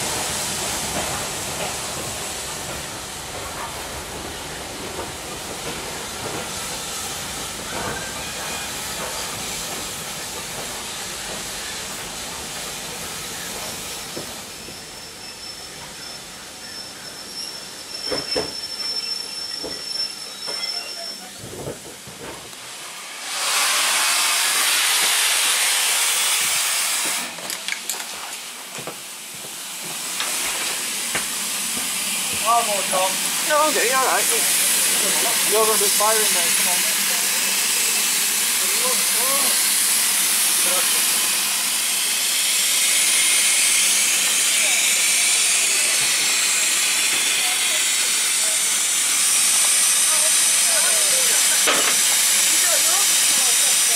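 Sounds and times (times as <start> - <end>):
steam locomotive hiss and rumble: 0.0 - 53.9
loud burst of escaping steam: 22.5 - 27.4, 28.4 - 53.9.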